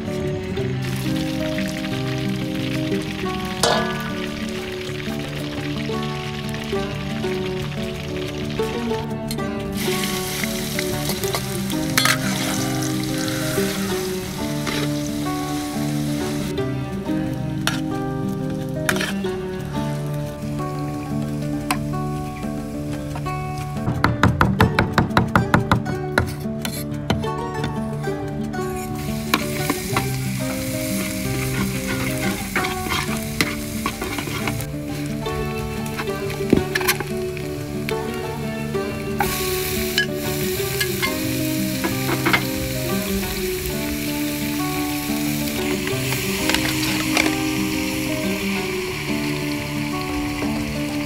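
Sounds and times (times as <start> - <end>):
background music: 0.0 - 51.0
deep-frying sizzle in oil: 0.6 - 9.1, 9.7 - 22.9, 28.7 - 51.0
metal ladle scraping wok: 3.4 - 5.1, 9.3 - 16.5, 17.6 - 17.9, 18.6 - 20.0, 26.2 - 27.0, 28.7 - 37.8, 38.4 - 42.9, 45.5 - 48.4
metal ladle knocking on wok: 3.6 - 4.5.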